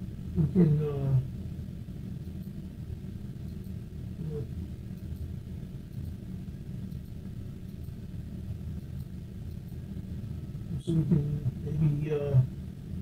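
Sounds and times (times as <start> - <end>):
low background rumble: 0.0 - 13.0
faint ticks: 5.9 - 6.2.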